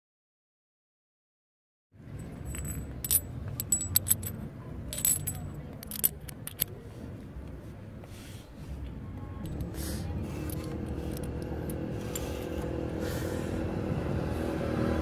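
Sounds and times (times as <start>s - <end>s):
low background rumble: 2.0s - 14.6s
metal clinks and taps: 2.2s - 6.7s.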